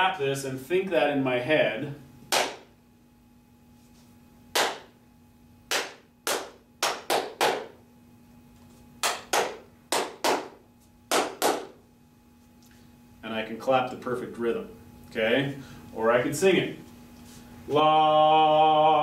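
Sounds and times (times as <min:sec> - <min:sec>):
person clapping hands: 0:02.3 - 0:02.7, 0:04.5 - 0:04.9, 0:05.7 - 0:07.8, 0:09.0 - 0:11.8.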